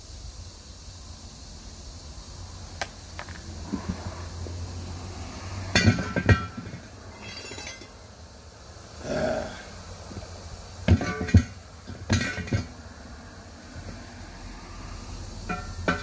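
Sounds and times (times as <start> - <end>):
ringing metal clanks: 5.8 - 8.0, 10.9 - 12.7, 15.5 - 16.0.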